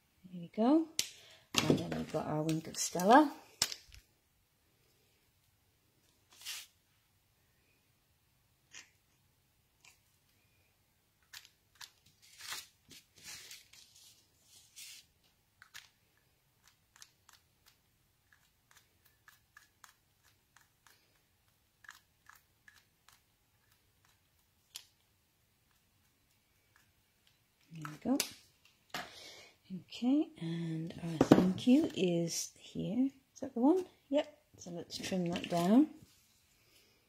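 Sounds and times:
scratchy crunchy handling sounds: 6.3s - 6.8s
plastic pens clicking and tapping: 15.6s - 25.1s.

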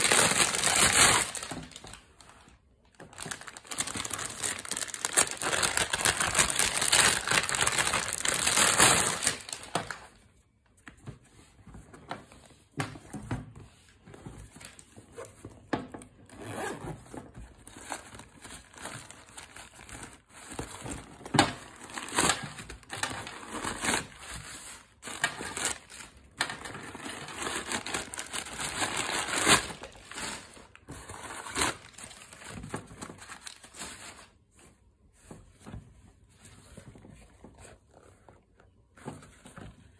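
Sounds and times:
shredded newspaper rustling: 0.0s - 2.0s, 3.1s - 10.0s, 21.8s - 34.4s
plastic wrapping crinkling: 0.0s - 10.2s, 21.4s - 34.5s.

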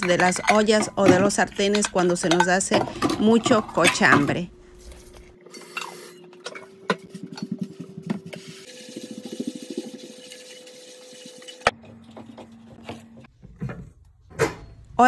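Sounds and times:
frying pan being scrubbed: 7.1s - 11.8s.

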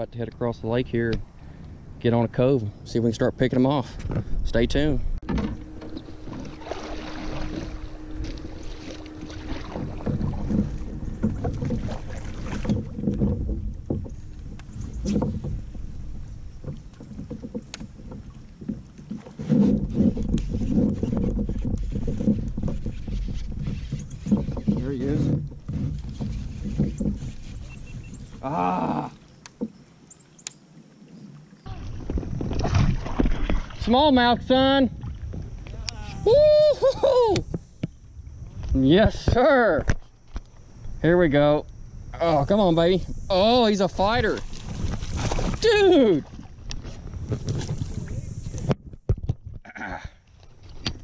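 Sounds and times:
wind rumbling on microphone: 0.0s - 28.8s, 31.6s - 51.0s
faint steady hum: 0.0s - 49.1s
kayak paddle splashing: 5.2s - 40.9s, 41.7s - 49.6s
fishing reel spool whirring: 5.4s - 12.9s.

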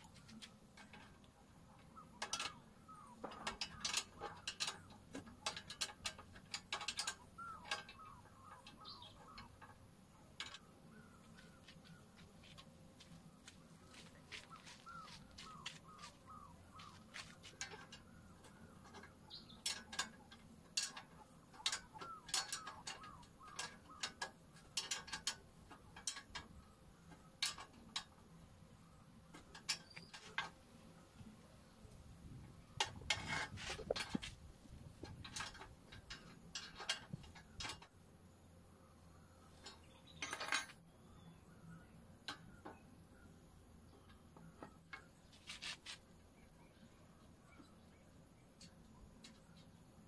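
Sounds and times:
wrench clinking on metal: 39.6s - 40.8s.

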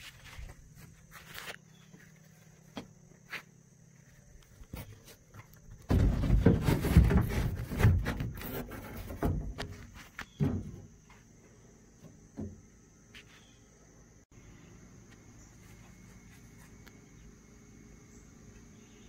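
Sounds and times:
scraping on plywood: 5.9s - 10.4s.

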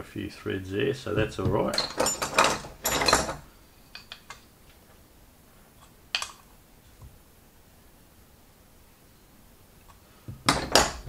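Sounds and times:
metal tools clattering: 1.2s - 4.5s, 10.5s - 11.0s.

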